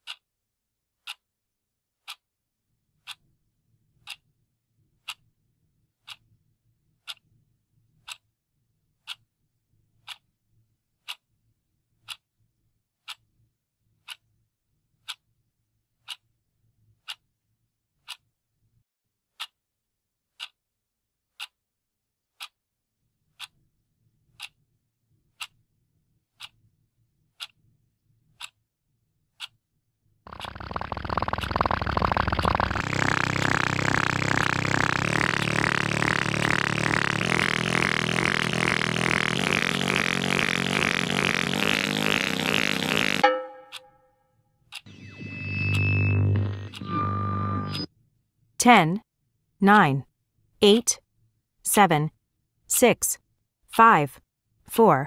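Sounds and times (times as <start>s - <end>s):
clock ticking: 30.3s - 43.9s.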